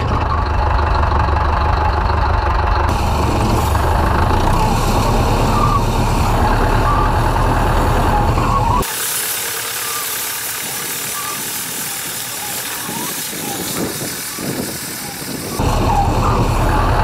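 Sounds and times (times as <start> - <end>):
tractor diesel engine running: 0.0 - 17.0.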